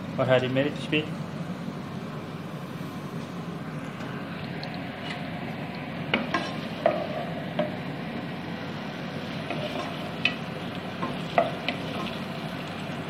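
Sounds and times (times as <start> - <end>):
onions sizzling in hot oil: 4.4 - 13.0.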